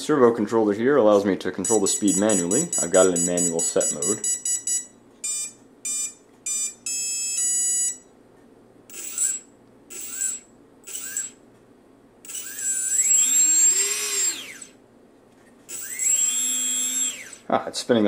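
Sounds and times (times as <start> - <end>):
speed controller beeps: 1.6 - 8.0
small motor whine: 8.9 - 11.4, 12.3 - 14.8, 15.7 - 17.5.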